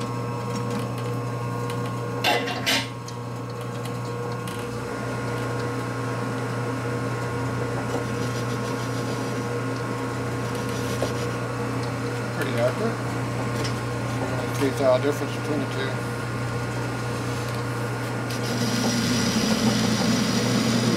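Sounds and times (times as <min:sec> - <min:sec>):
metal lathe humming: 0:04.8 - 0:20.9.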